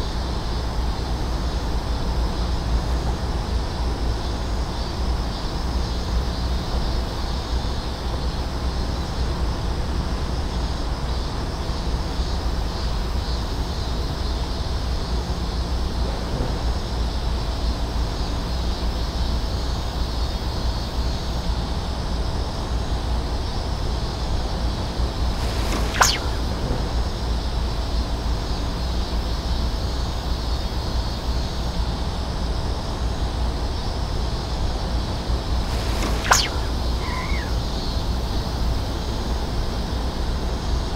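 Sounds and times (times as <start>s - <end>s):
outdoor hiss: 24.8s - 28.4s, 35.0s - 38.6s.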